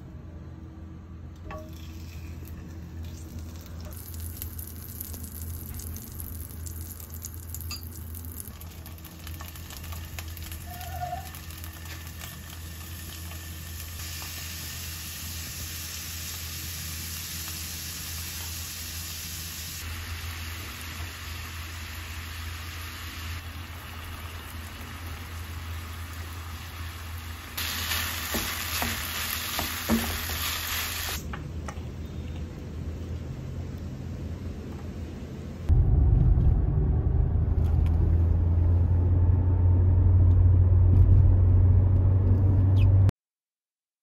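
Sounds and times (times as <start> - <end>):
steady low hum: 0.0 - 10.5
food sizzling in a frying pan: 3.4 - 31.2.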